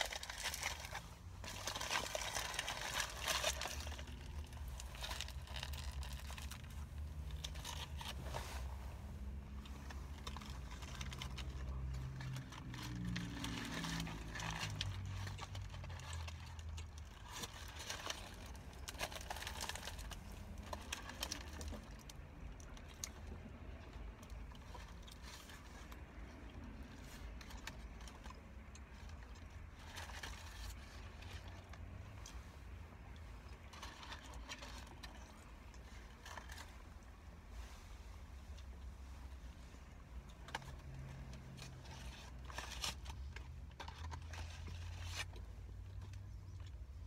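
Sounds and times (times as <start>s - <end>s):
foil paper wrapper crinkling: 0.0s - 22.9s
low steady hum: 0.0s - 47.0s.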